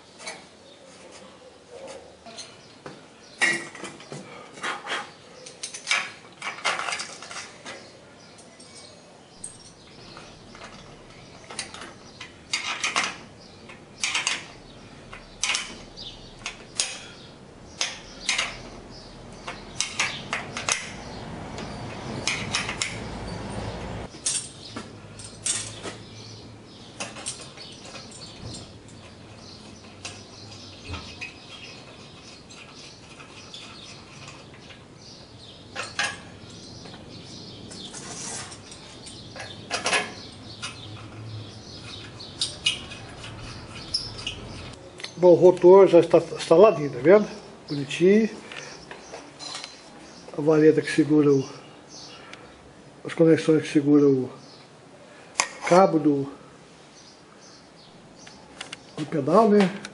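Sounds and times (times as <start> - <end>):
wrench clicking on nuts and bolts: 17.8 - 23.1.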